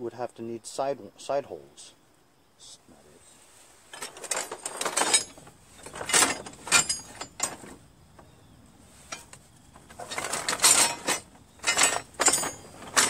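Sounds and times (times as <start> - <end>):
metal parts clanking and scraping: 3.9 - 7.8, 9.0 - 13.0.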